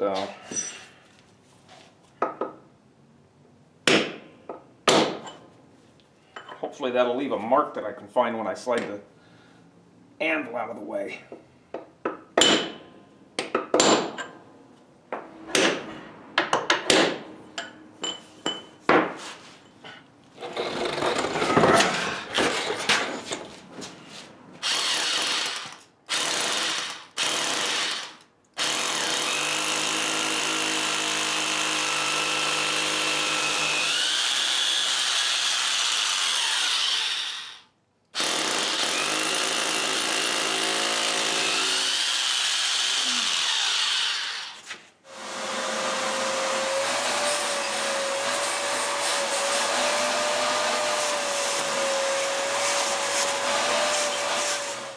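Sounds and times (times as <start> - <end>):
scraping on concrete: 19.1 - 24.5, 44.5 - 45.0
hammer drill boring concrete: 24.6 - 54.9.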